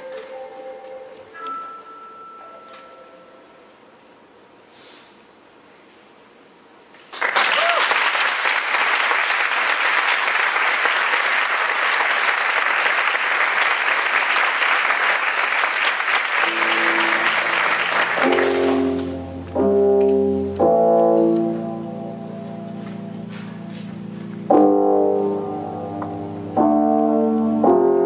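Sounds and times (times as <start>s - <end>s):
audience applauding: 7.1s - 19.2s
loud chords striking: 16.4s - 28.0s
music with sustained low chords: 16.5s - 28.0s.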